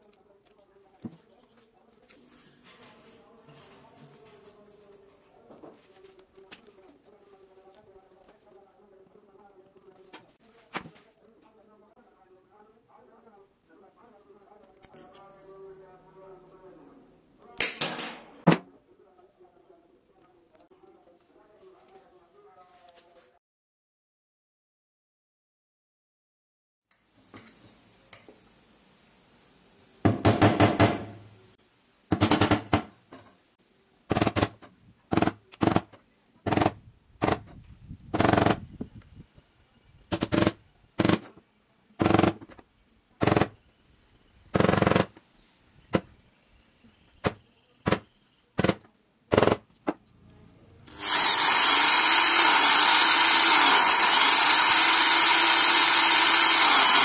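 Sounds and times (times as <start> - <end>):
electric drill boring into metal: 50.9 - 57.0.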